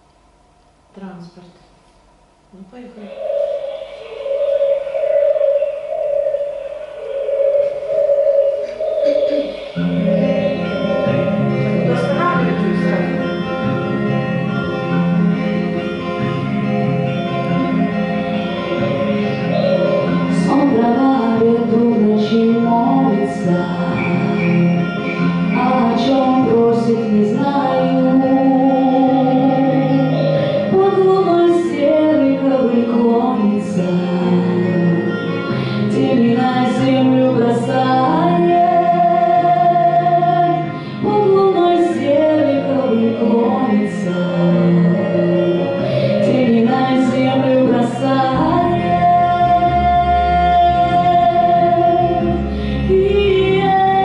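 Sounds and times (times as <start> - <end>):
instrumental accompaniment: 3.1 - 54.0
woman singing: 9.3 - 13.2, 20.3 - 54.0.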